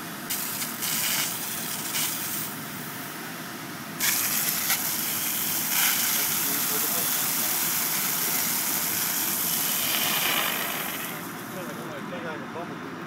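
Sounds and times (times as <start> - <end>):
fire engine pump running: 0.0 - 13.0
water rushing from fire hose: 0.3 - 2.5, 4.0 - 11.8.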